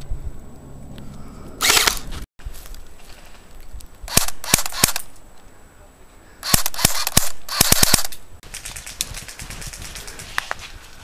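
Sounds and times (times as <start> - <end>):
airsoft rifle shots: 4.1 - 5.1, 6.4 - 8.2.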